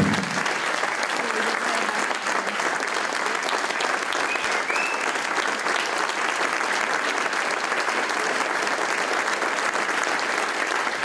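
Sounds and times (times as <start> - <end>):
dense applause: 0.0 - 11.0.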